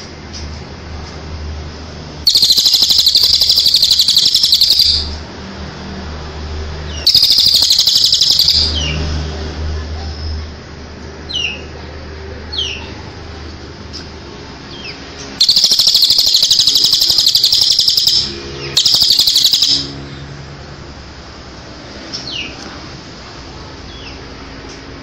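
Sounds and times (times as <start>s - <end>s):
fast bird trill: 2.3s - 5.2s, 7.0s - 9.0s, 15.4s - 20.0s
songbird chirps sliding downward: 2.3s - 5.2s, 7.0s - 8.9s, 15.4s - 20.0s.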